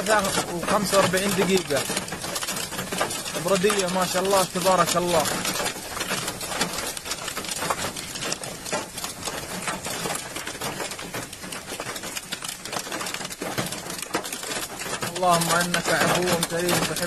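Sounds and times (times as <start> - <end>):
heavy rain pattering: 0.0 - 17.0.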